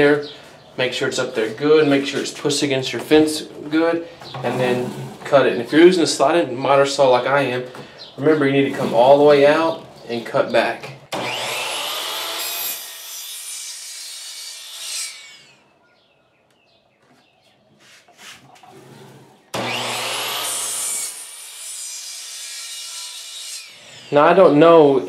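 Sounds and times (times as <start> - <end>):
miter saw cutting wood: 11.1 - 15.6, 19.5 - 24.6.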